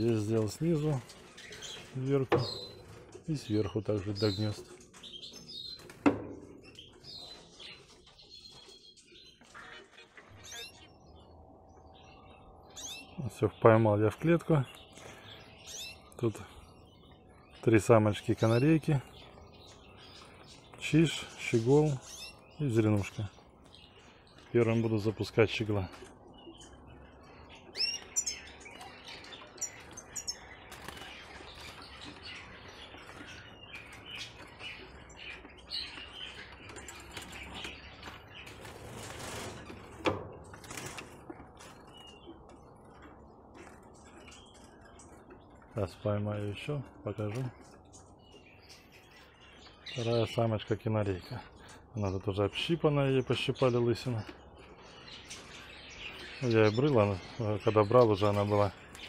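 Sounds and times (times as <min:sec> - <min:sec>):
birds chirping: 0:00.0 - 0:59.0
flutter of wings: 0:38.4 - 0:42.0.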